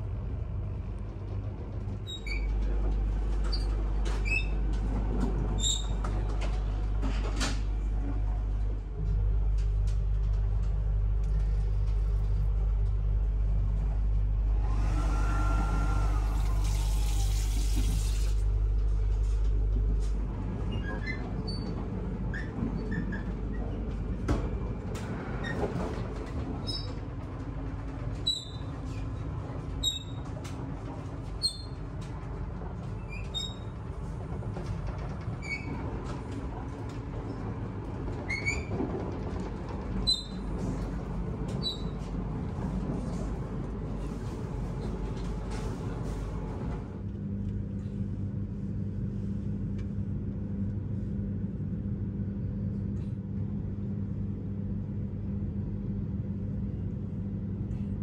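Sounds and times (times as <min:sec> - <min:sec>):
train hum: 0:00.0 - 0:52.3
light squeaks and clicks: 0:01.9 - 0:04.8, 0:05.6 - 0:06.6, 0:28.2 - 0:29.2, 0:29.8 - 0:30.6, 0:31.3 - 0:32.2, 0:33.0 - 0:33.8, 0:34.6 - 0:36.4, 0:38.1 - 0:42.1
water running from tap: 0:16.3 - 0:18.4
train running noise: 0:21.8 - 0:47.0.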